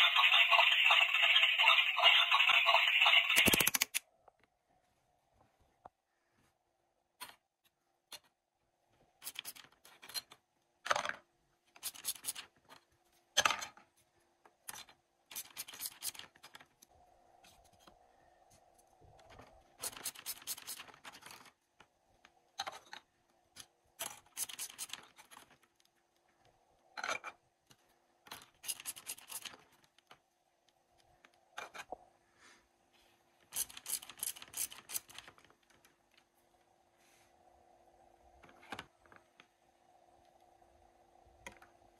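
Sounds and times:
plastic toy pieces clicking: 0.0 - 4.0, 14.6 - 16.8, 19.8 - 21.5, 22.6 - 25.6, 28.3 - 30.1, 33.5 - 35.8.

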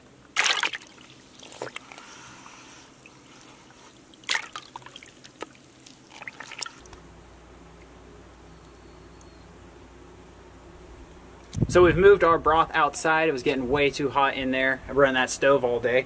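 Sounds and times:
steady low hum: 0.0 - 16.0
water splashing and dripping: 0.4 - 2.0, 3.0 - 7.0
hand stirring water in bucket: 0.4 - 7.0.

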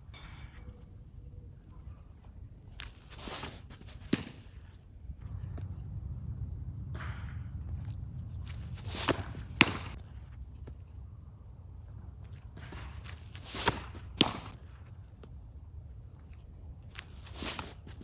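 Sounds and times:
pitcher's stride rustle: 7.7 - 15.3
faint bird chirps: 11.0 - 11.7, 14.6 - 15.8.

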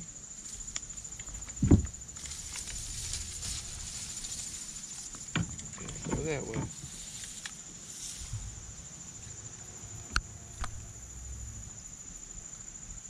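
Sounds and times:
insects buzzing: 0.0 - 13.0
soft rustle: 0.4 - 9.4
loud low thump: 1.5 - 2.0.

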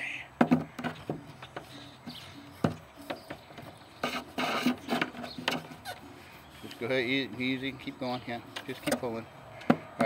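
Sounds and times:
wire scraping against metal edge: 0.7 - 7.6.

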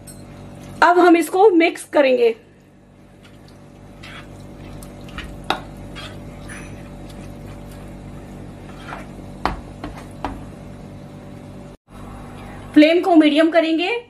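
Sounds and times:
spoon stirring wet rice: 3.1 - 7.9.

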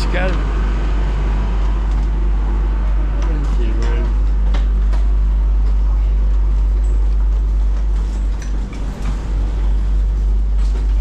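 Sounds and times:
train rumbling inside carriage: 0.0 - 11.0
faint rattles: 7.6 - 11.0.

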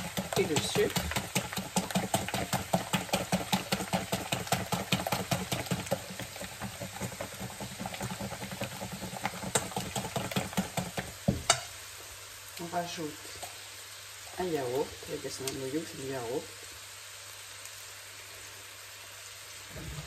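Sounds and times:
whisk clicking against metal bowl: 0.0 - 11.6.

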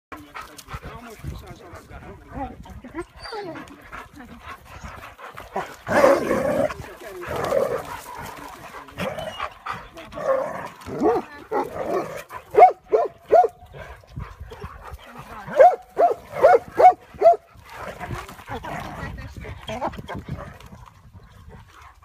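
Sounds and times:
dogs barking and yipping: 2.9 - 18.6.

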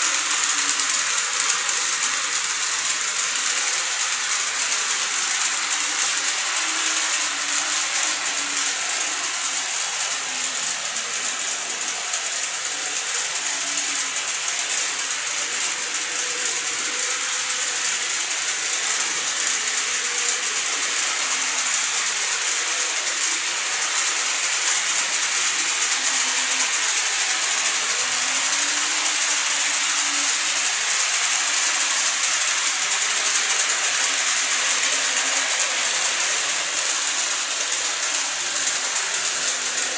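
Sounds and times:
high hiss: 0.0 - 39.9
model train wheels rolling on rail: 0.0 - 39.9.

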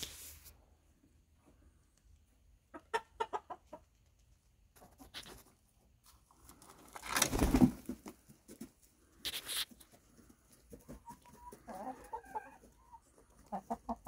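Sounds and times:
chickens clucking: 2.3 - 6.6, 7.9 - 14.0.

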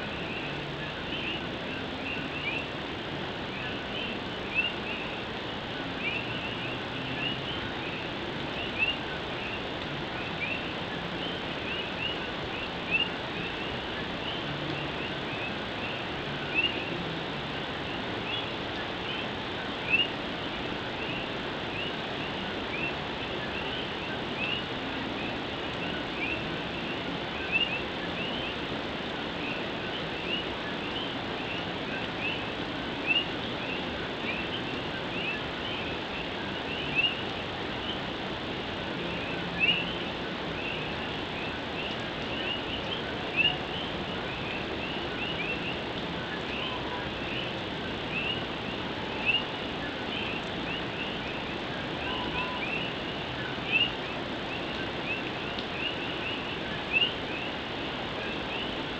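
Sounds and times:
rain on a tin roof: 0.0 - 58.9
frogs chirping: 3.6 - 20.2, 29.4 - 38.1, 39.0 - 58.8.

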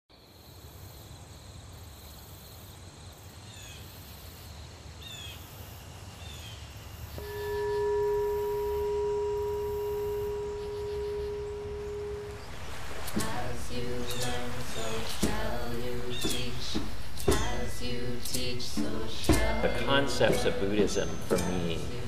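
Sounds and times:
insects trilling: 0.2 - 22.0
meditation bowl ringing: 7.2 - 13.3
bird chirping: 7.2 - 17.8, 19.2 - 21.9.

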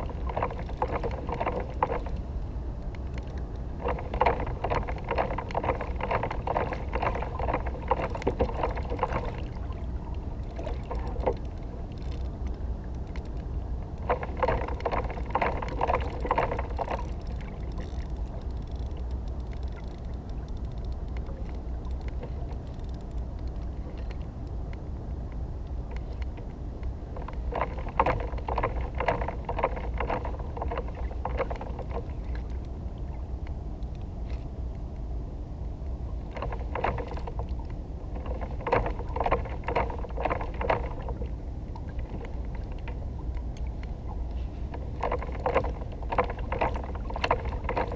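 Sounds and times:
steady low rumble: 0.0 - 47.9
fishing reel clicking rapidly: 16.8 - 21.0.

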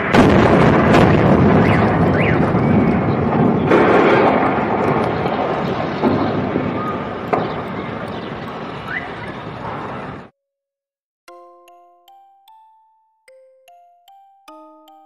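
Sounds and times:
smaller bangs: 0.0 - 8.0
explosion blast and rumbling roar: 0.0 - 8.5.

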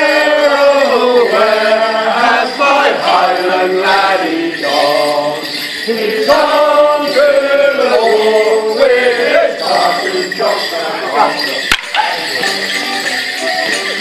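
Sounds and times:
leg bells jingling: 0.0 - 14.0
folk dance tune played live: 11.0 - 14.0.

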